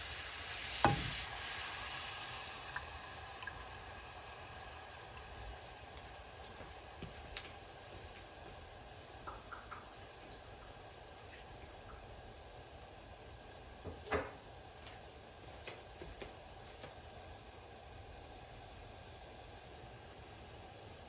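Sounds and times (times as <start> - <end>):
sauce hissing in a saucepan: 0.0 - 7.0, 19.5 - 21.0
sauce popping: 0.3 - 8.3, 9.0 - 10.6.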